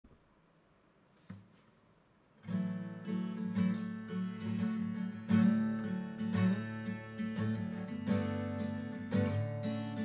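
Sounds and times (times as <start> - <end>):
acoustic guitar riff: 2.4 - 10.0.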